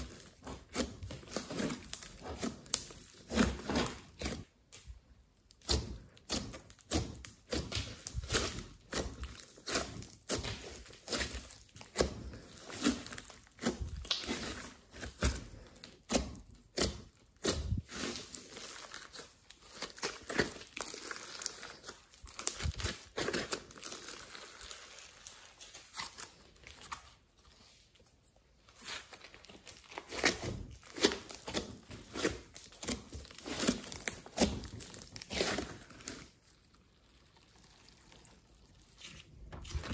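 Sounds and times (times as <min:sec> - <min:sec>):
sticky slime clicks and crackles: 0:00.0 - 0:24.4.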